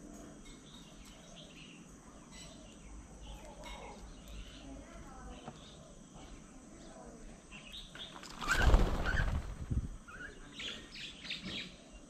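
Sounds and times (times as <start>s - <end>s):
bird calls: 7.5s - 12.0s
wings flapping: 8.1s - 10.0s.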